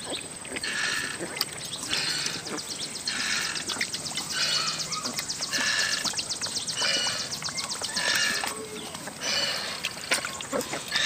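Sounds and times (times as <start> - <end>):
puppies lapping from metal bowl: 0.0 - 11.0.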